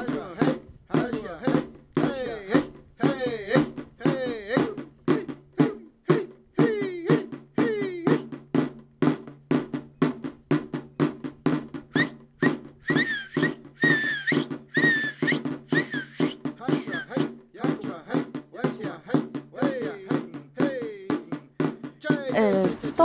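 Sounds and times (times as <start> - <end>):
drum beaten in quick rhythm: 0.0 - 23.0
high whistled notes: 11.9 - 17.2.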